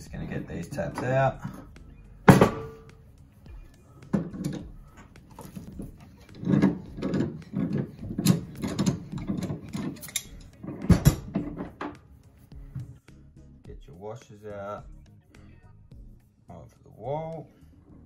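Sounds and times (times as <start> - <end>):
metal tap parts clinking: 4.1 - 12.0.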